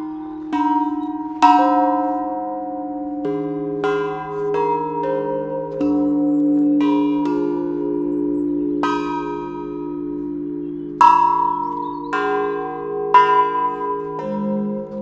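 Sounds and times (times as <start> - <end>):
low ringing of tubes: 0.0 - 15.0
metal chime tubes struck: 13.2 - 15.0.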